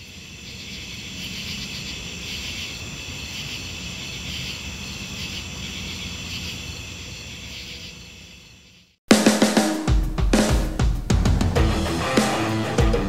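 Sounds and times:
insects chirping: 0.0s - 9.0s.

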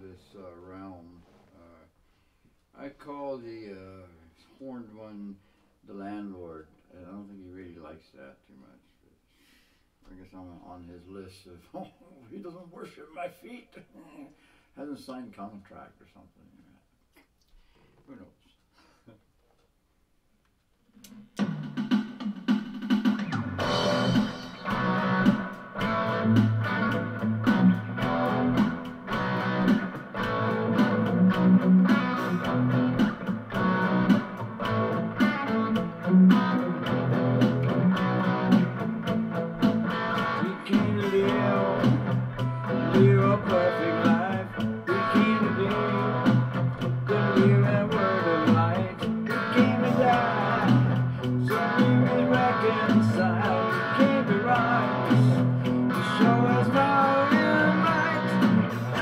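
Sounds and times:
electric guitar playing: 23.2s - 59.0s.

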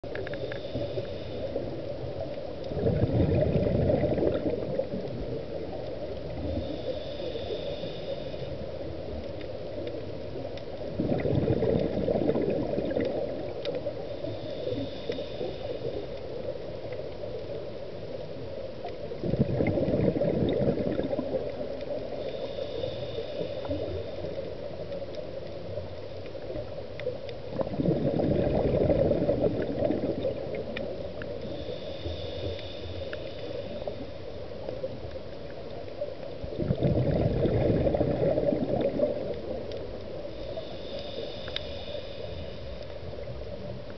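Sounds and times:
regulator inhalation hiss: 0.2s - 1.9s, 6.4s - 9.1s, 13.8s - 16.9s, 21.9s - 24.6s, 31.2s - 34.6s, 40.1s - 43.3s
bubbling exhalation underwater: 2.7s - 5.0s, 10.9s - 13.4s, 19.2s - 21.6s, 27.5s - 30.5s, 36.5s - 39.3s.

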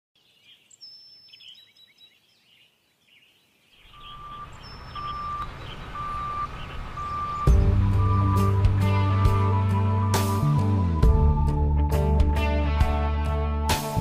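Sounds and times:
faint birds chirping: 0.2s - 9.8s
engine rumble: 3.9s - 11.4s
reversing alarm beeping: 4.0s - 9.0s.

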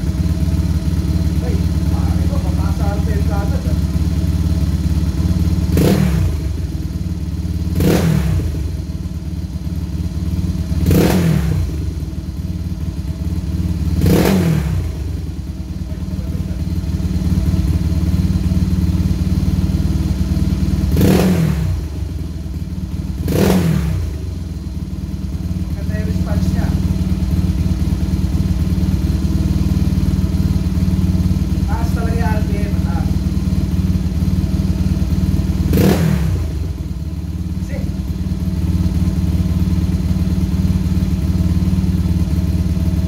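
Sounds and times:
motorcycle engine idling and revving: 0.0s - 43.0s.

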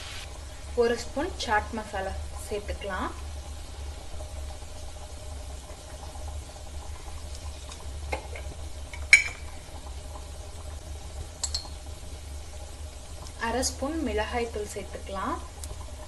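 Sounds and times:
onions bubbling and sizzling: 0.0s - 16.0s.

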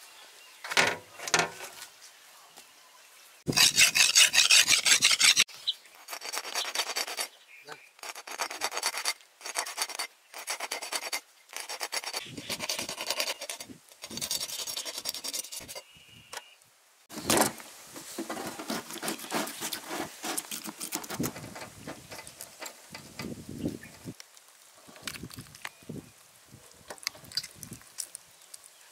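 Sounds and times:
fish being scraped: 3.5s - 7.3s, 8.0s - 15.8s, 18.2s - 21.6s.

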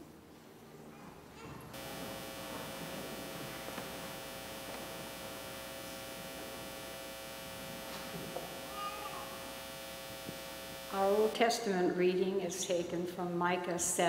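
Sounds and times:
sound system hum and hiss: 1.7s - 11.7s.

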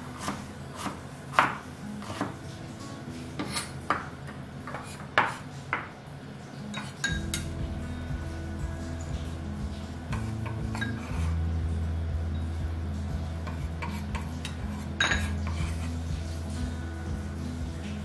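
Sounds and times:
background music: 0.0s - 18.0s
knife chopping on wooden board: 0.1s - 2.3s.

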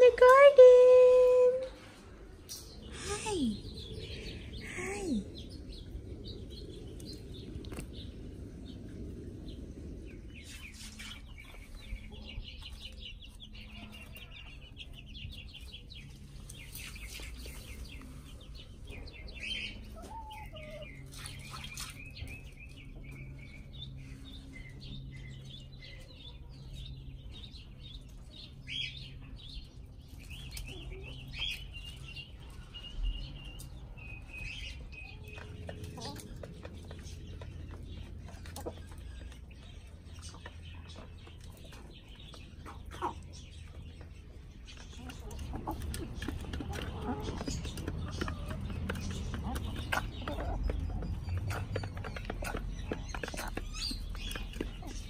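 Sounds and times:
small birds chirping: 0.0s - 55.0s
chickens clucking: 5.4s - 55.0s.

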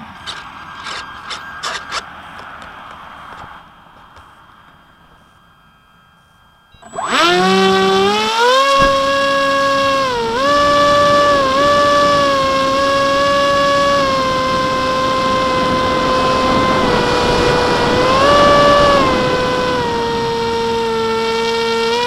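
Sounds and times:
electric motor and propeller whining: 0.0s - 22.0s
wind noise: 6.9s - 22.0s.

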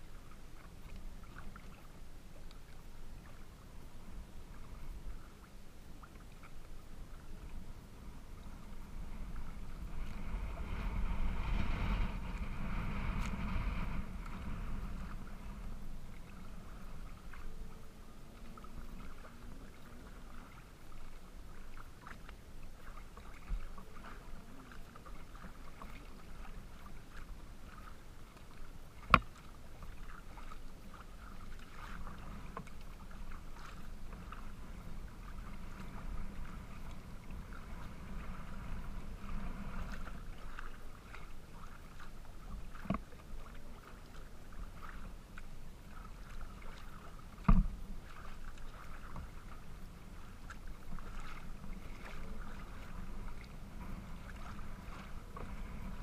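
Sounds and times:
water sloshing against kayak hull: 0.0s - 56.0s.

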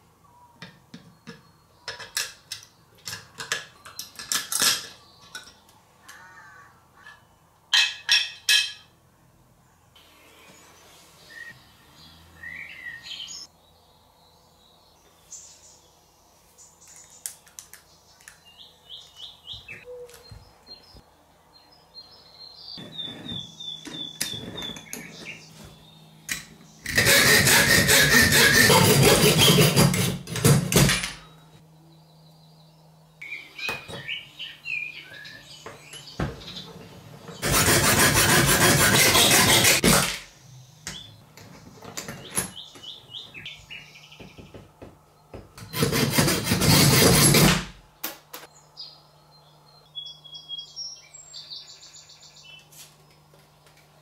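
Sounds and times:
clicks and taps of metal parts: 0.6s - 6.2s
hacksaw cutting steel: 26.8s - 31.0s, 37.4s - 40.2s, 45.7s - 47.7s.

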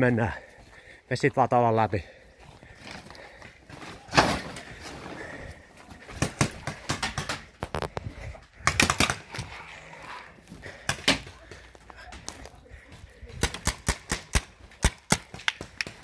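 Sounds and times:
paintball markers firing: 6.2s - 7.8s, 8.6s - 9.5s, 13.4s - 16.0s.

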